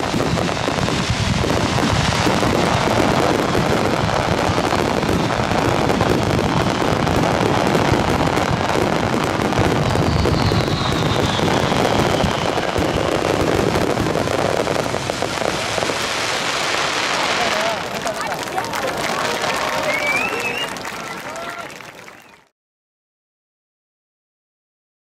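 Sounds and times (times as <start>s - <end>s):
fireworks bangs: 0.0s - 22.4s
falling whistle: 10.0s - 13.1s, 19.6s - 22.4s.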